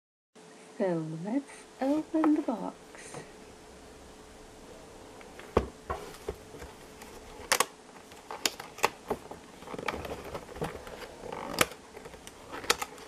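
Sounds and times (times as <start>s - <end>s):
packaging clicks and knocks: 5.6s - 13.0s.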